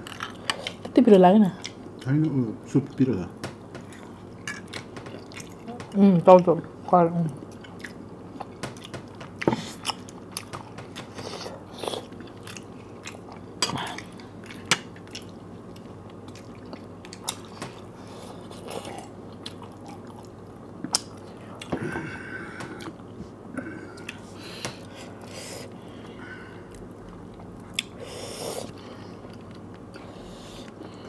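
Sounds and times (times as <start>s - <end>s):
chewing and mouth sounds: 3.8s - 6.0s, 7.3s - 21.8s, 26.6s - 28.0s.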